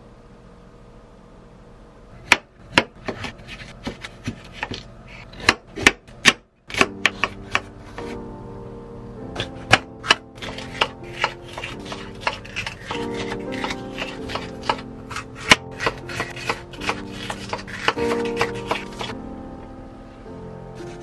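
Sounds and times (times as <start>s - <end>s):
knife chopping on cutting board: 2.2s - 8.2s, 9.4s - 19.1s
soft background music: 6.7s - 21.0s.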